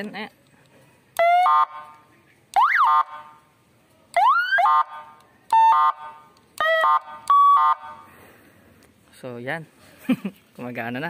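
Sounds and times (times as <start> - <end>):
electronic car siren tones: 1.2 - 1.9, 2.6 - 3.2, 4.2 - 8.0.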